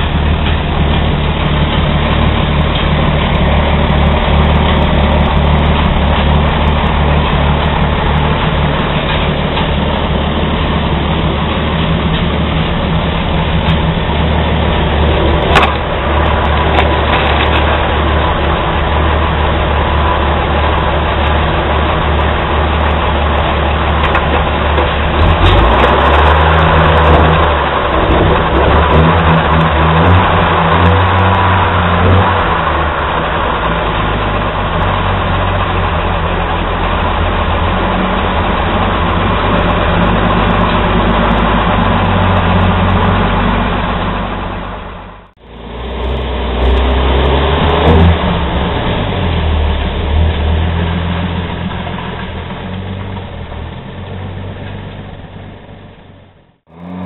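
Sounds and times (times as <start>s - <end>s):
truck engine running: 0.0s - 57.0s.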